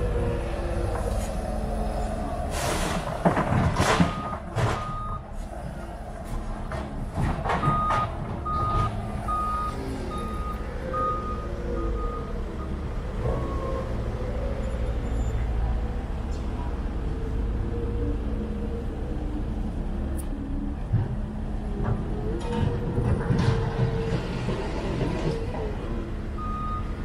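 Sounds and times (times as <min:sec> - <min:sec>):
diesel machinery running: 0:00.0 - 0:27.0
reversing alarm beeping: 0:04.1 - 0:05.2, 0:07.6 - 0:14.1, 0:26.4 - 0:27.0.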